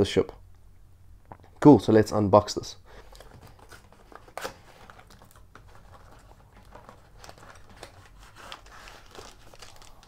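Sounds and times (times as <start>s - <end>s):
plastic bags rustling: 2.9s - 10.0s.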